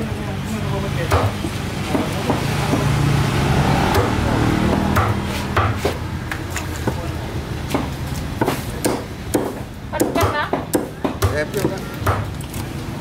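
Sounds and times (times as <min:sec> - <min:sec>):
cleaver chopping on wooden block: 0:01.1 - 0:02.9, 0:03.8 - 0:06.0, 0:07.7 - 0:12.3.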